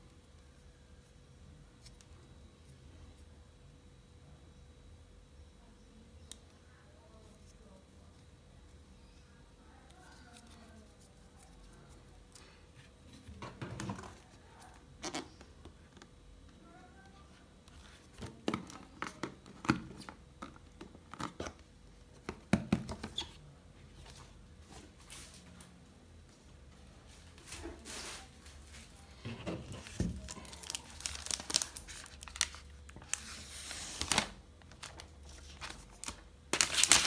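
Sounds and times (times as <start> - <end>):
plastic packaging clicks and rustles: 29.4 - 37.0.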